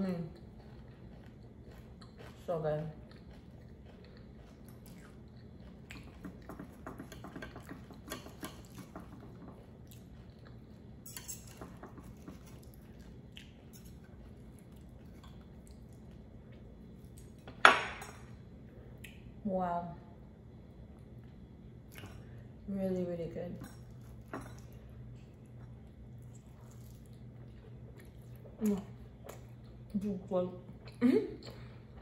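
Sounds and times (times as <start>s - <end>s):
cutlery scraping a plate: 11.0s - 12.6s.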